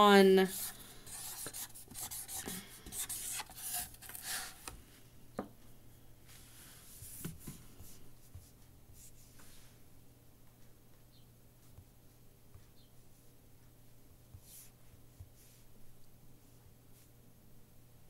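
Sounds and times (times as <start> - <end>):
pen scratching on paper: 0.4 - 4.6.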